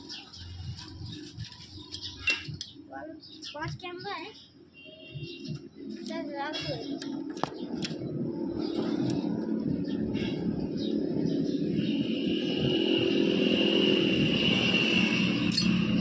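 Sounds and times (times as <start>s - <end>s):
high whine: 7.0s - 16.0s
vehicle engine running: 8.4s - 16.0s.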